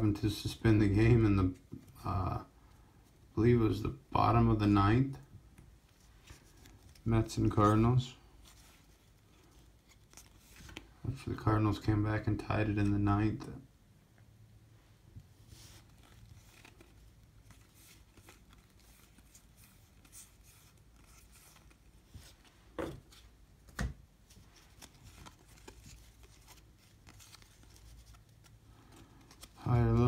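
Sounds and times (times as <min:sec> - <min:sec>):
cards sliding and flicking: 0:15.5 - 0:28.6.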